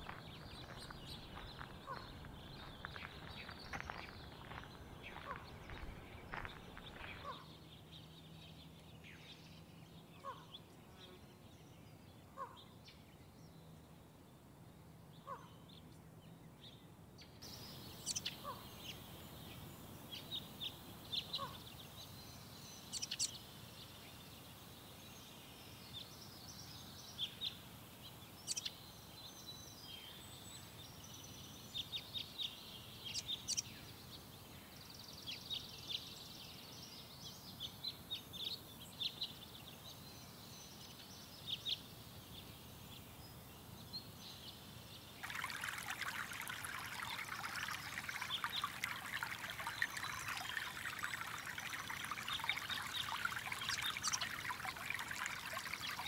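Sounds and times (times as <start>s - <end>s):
birds chirping: 0.0s - 8.2s, 45.2s - 56.0s
stream running water: 0.0s - 9.3s, 45.0s - 56.0s.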